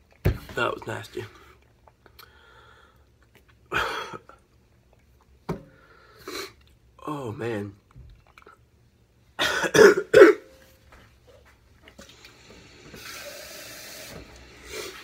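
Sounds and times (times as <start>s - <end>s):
man coughing hard: 3.7s - 4.3s, 9.4s - 10.5s.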